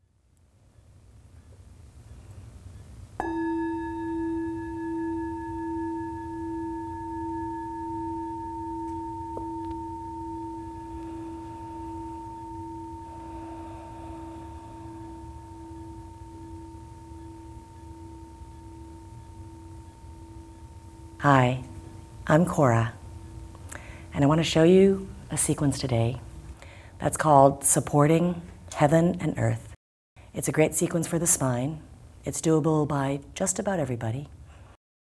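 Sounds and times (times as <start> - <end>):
singing bowl struck and ringing: 3.2 - 26.0.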